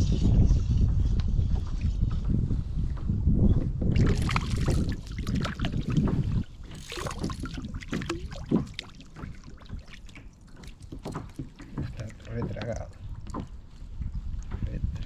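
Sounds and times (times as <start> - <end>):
wind rumbling on microphone: 0.0 - 15.0
waves lapping against kayak hull: 1.6 - 15.0
sharp splashes: 4.0 - 11.4.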